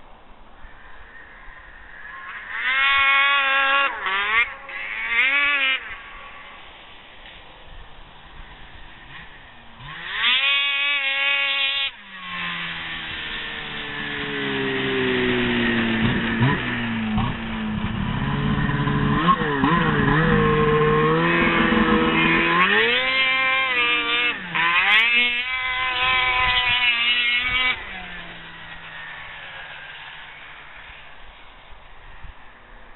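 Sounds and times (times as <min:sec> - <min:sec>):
snowmobile engine revving: 0:02.0 - 0:32.7.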